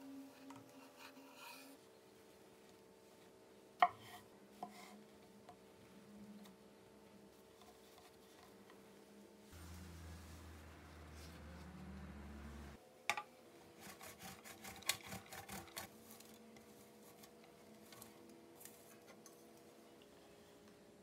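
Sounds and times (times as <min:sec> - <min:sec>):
steady low hum: 0:09.5 - 0:12.8
cheese grating on metal grater: 0:13.8 - 0:15.9.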